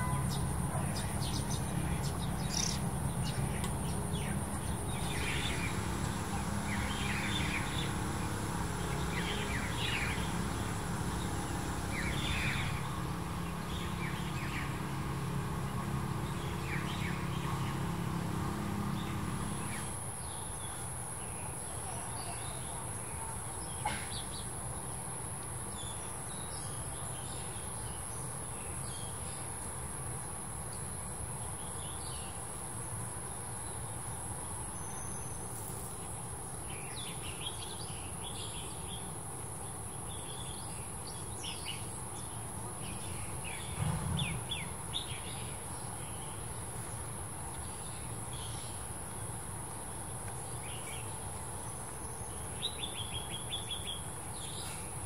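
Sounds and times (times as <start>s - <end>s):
small birds chirping: 0.0s - 22.8s, 49.8s - 55.0s.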